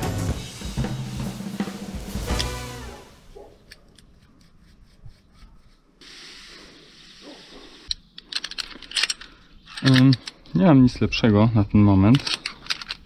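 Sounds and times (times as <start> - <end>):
rope and climbing gear rubbing: 3.4 - 7.9
metal hardware clicks: 7.9 - 10.6, 11.8 - 13.0.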